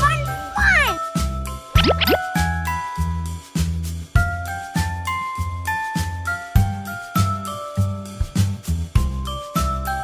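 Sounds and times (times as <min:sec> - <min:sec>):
repeating bass beat: 0:01.8 - 0:02.4.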